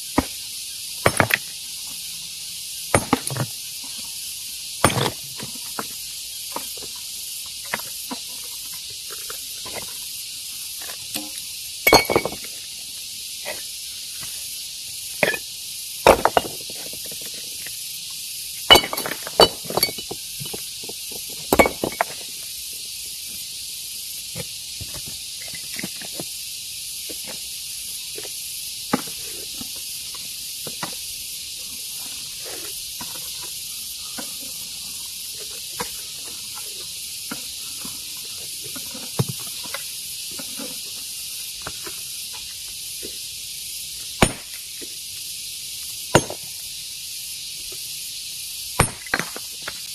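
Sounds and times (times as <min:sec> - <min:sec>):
steady high hiss: 0:00.0 - 0:49.9
rock knocks: 0:02.9 - 0:03.4, 0:16.0 - 0:16.6, 0:44.2 - 0:44.5, 0:46.1 - 0:46.4, 0:48.8 - 0:49.4.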